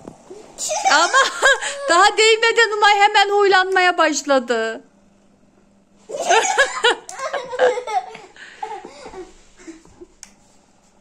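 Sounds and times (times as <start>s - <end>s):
massager motor hum: 0.0s - 11.0s
girl laughing: 0.6s - 2.2s, 6.1s - 10.1s.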